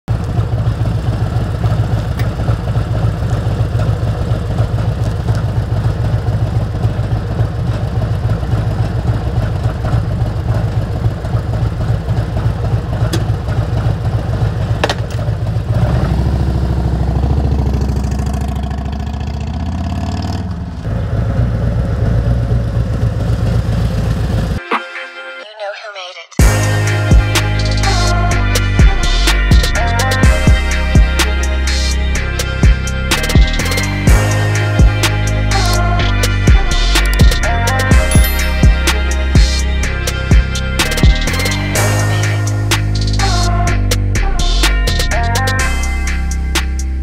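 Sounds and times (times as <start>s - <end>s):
motorcycle engine idling and revving: 0.0s - 24.6s, 26.4s - 47.0s.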